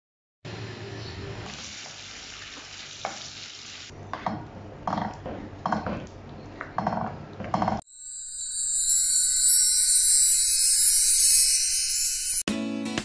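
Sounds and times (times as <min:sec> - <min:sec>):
shrimp sizzling in a wok: 0:01.5 - 0:03.9
music: 0:08.1 - 0:13.0.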